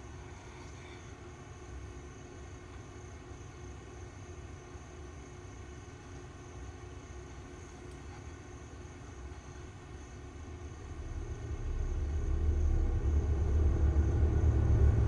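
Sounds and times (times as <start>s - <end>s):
faint constant hum: 0.0s - 15.0s
low rumbling drone: 10.7s - 15.0s.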